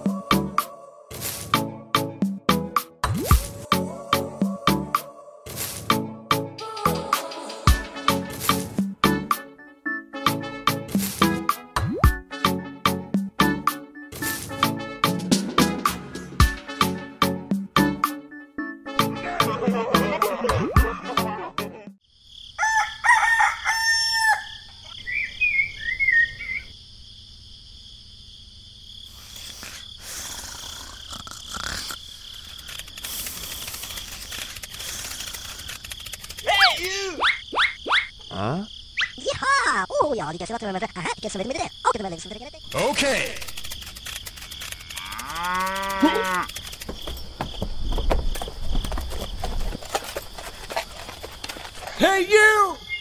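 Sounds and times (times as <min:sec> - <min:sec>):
crickets chirping: 0:22.0 - 0:53.0
rooster crowing: 0:22.5 - 0:24.8
short chirping calls: 0:24.8 - 0:26.7, 0:34.8 - 0:38.3, 0:52.8 - 0:53.0
farmyard ambience hiss: 0:29.0 - 0:30.8
cow mooing: 0:45.0 - 0:46.5.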